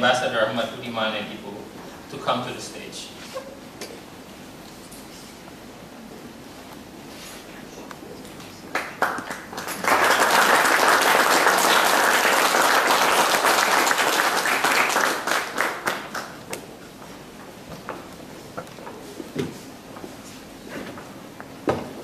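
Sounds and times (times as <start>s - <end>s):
audience applauding: 8.7s - 16.5s.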